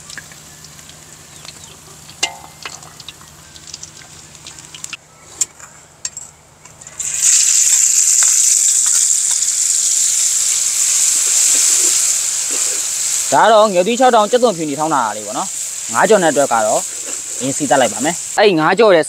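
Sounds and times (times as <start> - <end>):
paste sizzling in hot oil: 7.0 - 18.4.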